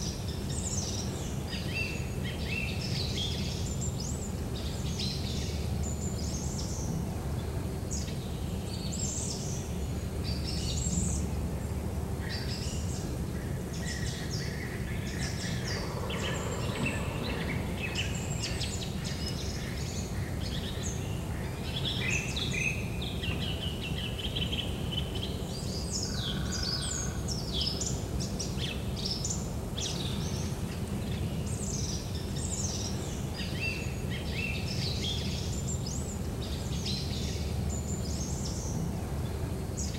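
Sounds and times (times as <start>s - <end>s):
low background rumble: 0.0s - 39.9s
small birds chirping and trilling: 0.0s - 39.9s.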